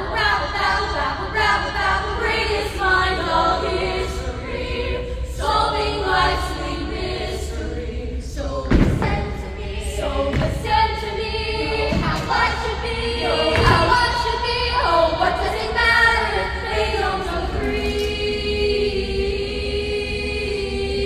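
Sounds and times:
vocal ensemble singing: 0:00.0 - 0:21.0
heavy thump: 0:08.6 - 0:09.5, 0:10.2 - 0:11.0, 0:11.9 - 0:12.5.

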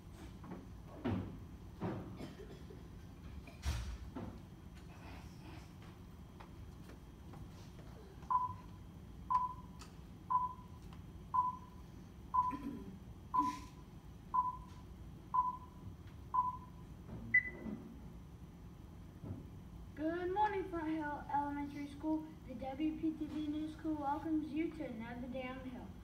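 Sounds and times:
countdown short beeps: 0:08.3 - 0:08.6, 0:09.3 - 0:09.7, 0:10.3 - 0:10.7, 0:11.4 - 0:11.8, 0:14.4 - 0:14.7, 0:15.4 - 0:15.8, 0:16.4 - 0:17.6.

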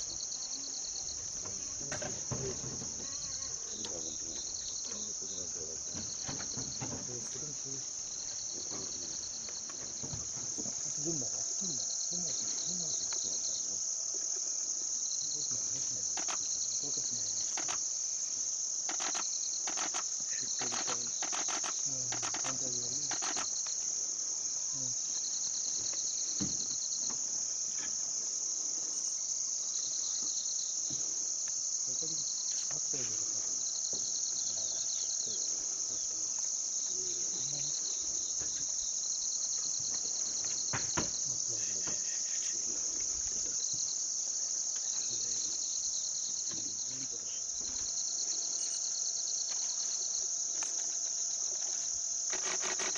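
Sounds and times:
crickets and insects chirping: 0:00.0 - 0:52.9
faint clicks: 0:18.9 - 0:23.8.

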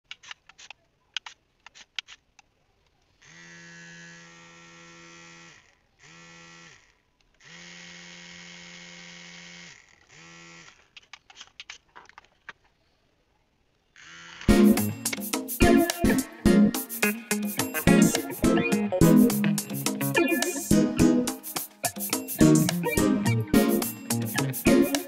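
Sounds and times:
small motor spinning fan: 0:03.2 - 0:11.0, 0:14.0 - 0:14.5.

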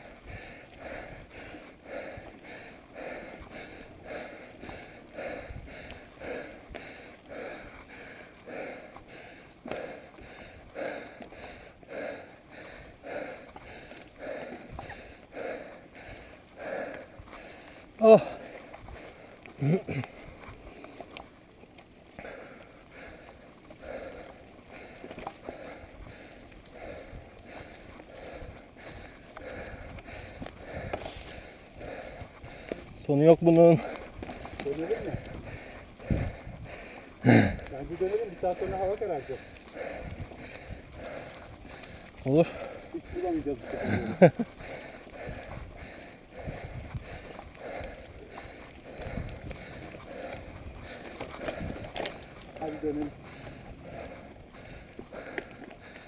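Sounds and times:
bike tyre noise: 0:00.0 - 0:56.0
rider heavy breathing: 0:00.0 - 0:56.0
wind noise: 0:03.0 - 0:07.9, 0:26.8 - 0:33.0, 0:33.8 - 0:38.0, 0:38.6 - 0:55.3.

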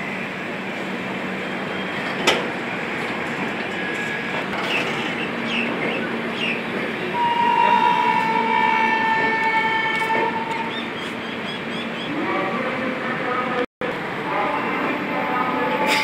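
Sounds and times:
train wheels rumbling on rail: 0:00.0 - 0:12.7
train horn: 0:07.2 - 0:10.7.

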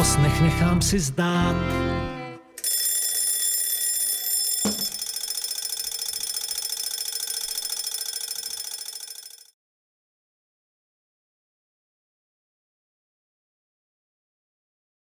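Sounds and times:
mechanical alarm clock ringing: 0:02.6 - 0:09.6
thump: 0:04.6 - 0:04.9.

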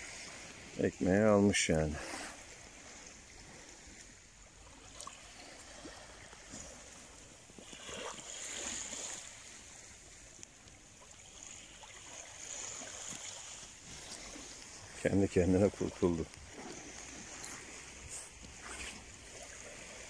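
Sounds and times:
small waves washing on sand: 0:00.0 - 0:20.0.

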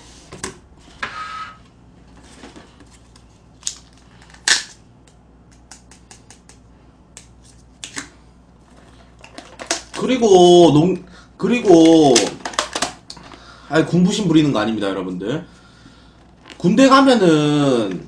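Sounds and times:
plastic packaging snapping and crinkling: 0:03.0 - 0:04.8, 0:09.1 - 0:10.2, 0:11.6 - 0:13.4.

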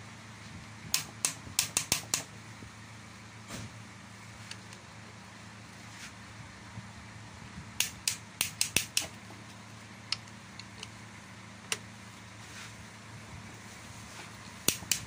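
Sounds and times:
steady low hum: 0:00.0 - 0:15.0
ratchet wrench clicking: 0:01.0 - 0:02.3, 0:07.8 - 0:09.2, 0:14.6 - 0:15.0.

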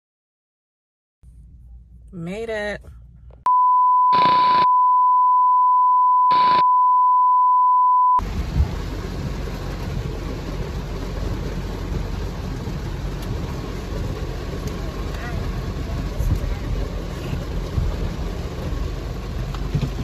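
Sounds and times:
test tone beep: 0:03.5 - 0:08.2
tv static burst: 0:04.1 - 0:04.7, 0:06.3 - 0:06.6
car road rumble from cabin: 0:08.2 - 0:20.0.

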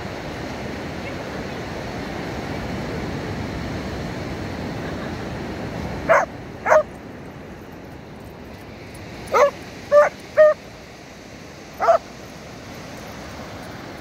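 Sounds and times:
surf rushing: 0:00.0 - 0:14.0
wind: 0:00.0 - 0:14.0
dog barking: 0:06.1 - 0:06.9, 0:09.3 - 0:10.6, 0:11.8 - 0:12.0.

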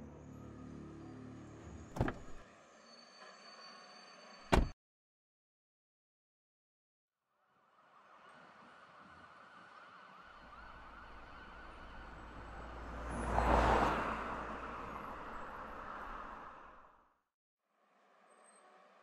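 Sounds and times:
emergency vehicle siren wailing: 0:09.5 - 0:12.9.

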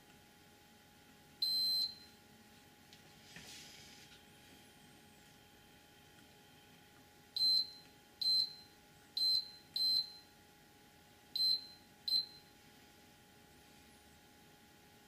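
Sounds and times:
multimeter beeps: 0:01.4 - 0:02.2, 0:07.4 - 0:10.3, 0:11.4 - 0:12.6.

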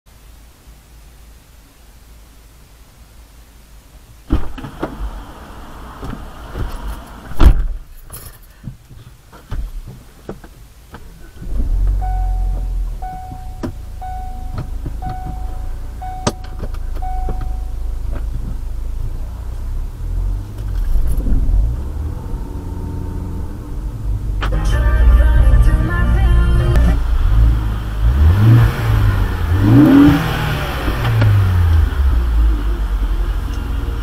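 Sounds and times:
car engine idling: 0:03.9 - 0:34.0
car door opening and shutting: 0:04.3 - 0:19.2, 0:24.3 - 0:25.4
dashboard warning chime: 0:11.9 - 0:18.0.

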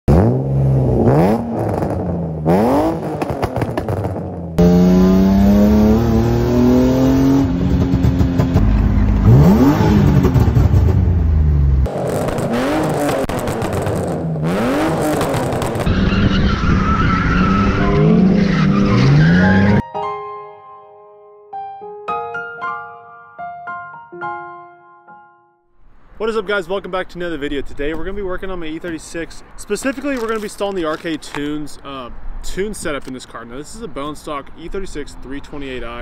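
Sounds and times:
car engine revving: 0:00.1 - 0:19.8
tyre squeal: 0:15.9 - 0:19.8.

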